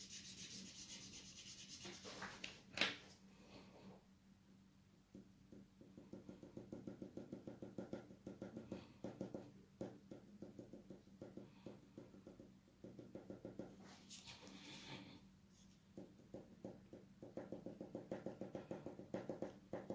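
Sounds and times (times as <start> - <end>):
pencil scratching on paper: 0.0 - 2.2.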